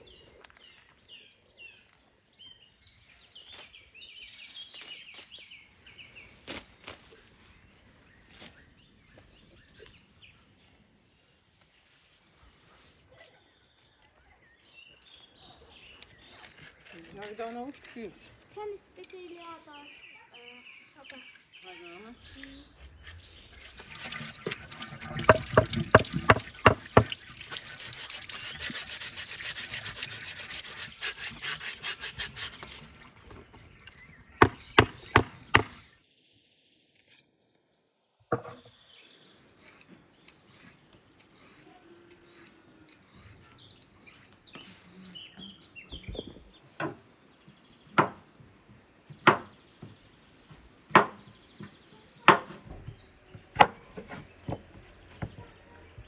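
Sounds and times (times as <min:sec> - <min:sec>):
tap water splashing: 0:23.6 - 0:30.3
peeler scraping cucumber skin: 0:27.5 - 0:32.9, 0:39.6 - 0:45.2.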